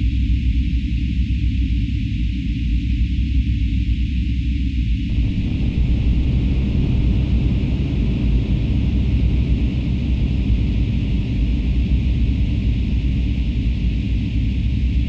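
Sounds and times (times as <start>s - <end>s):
electronic drone music: 5.1s - 10.8s.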